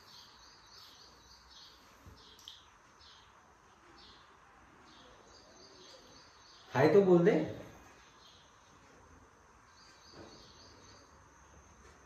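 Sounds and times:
faint high chirps: 0.0s - 7.0s.

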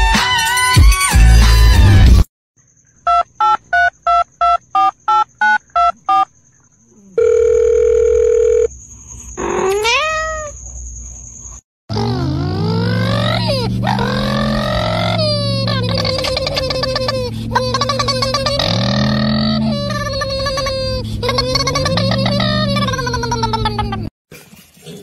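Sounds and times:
cat meowing: 9.4s - 10.6s.

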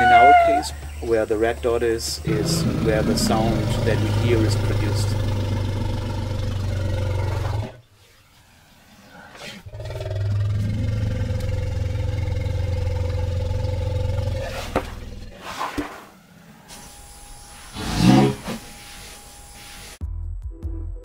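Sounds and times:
elephant loud call: 0.0s - 1.0s, 17.7s - 18.6s
elephant low rumble: 0.0s - 7.8s, 8.6s - 16.7s, 17.6s - 18.7s.

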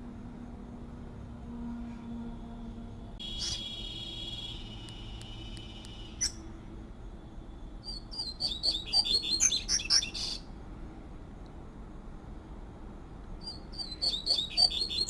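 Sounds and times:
bird whistling high note: 3.2s - 6.4s, 13.4s - 15.0s
bird chirping notes: 3.2s - 6.5s, 7.8s - 10.5s, 13.4s - 15.0s.

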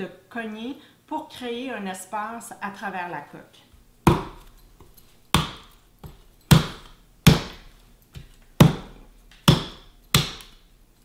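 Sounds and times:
knife chopping coconut shell: 4.0s - 10.6s.

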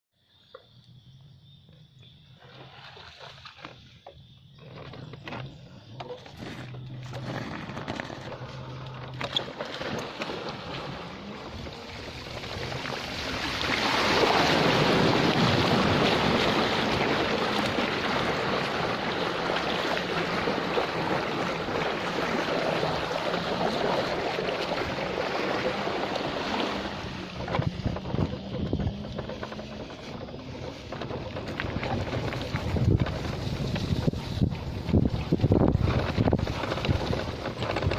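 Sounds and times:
bike rolling on gravel: 4.2s - 37.9s
splashing through floodwater: 6.4s - 37.9s.

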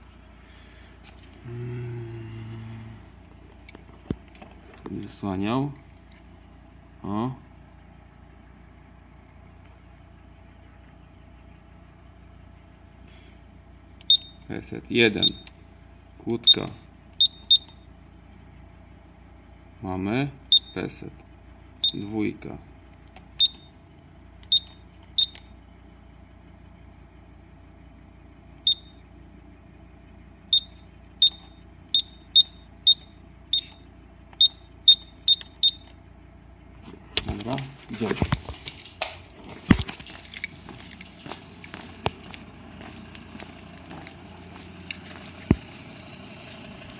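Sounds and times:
low room hum: 0.0s - 46.9s
keypad beeps: 14.0s - 14.4s, 15.2s - 15.5s, 24.5s - 25.4s, 30.5s - 33.8s, 34.4s - 35.9s.

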